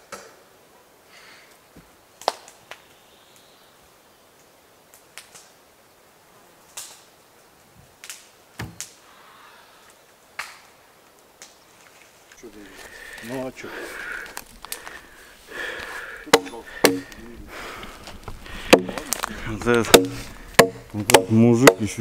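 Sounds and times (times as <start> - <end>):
axe knocks on log: 16.3 - 17.2, 19.9 - 21.9.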